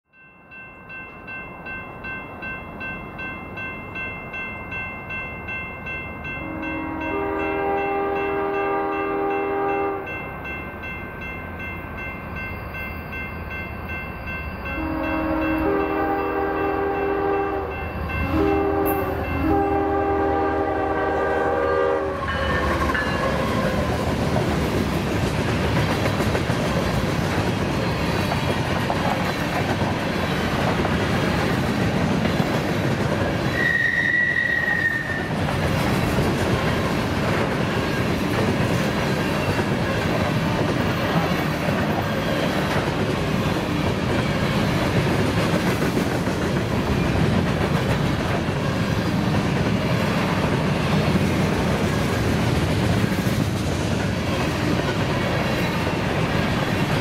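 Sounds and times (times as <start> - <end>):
bell ringing: 0.1 - 17.1
train engine and wheel noise: 0.1 - 57.0
locomotive chime horn blasts: 6.2 - 10.4, 14.3 - 23.8, 33.5 - 35.4.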